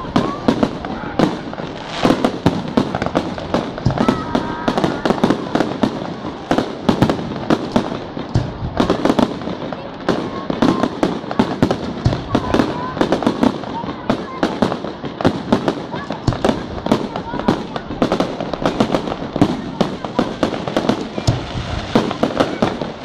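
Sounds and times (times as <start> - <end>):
fireworks bursting and crackling: 0.0 - 23.0.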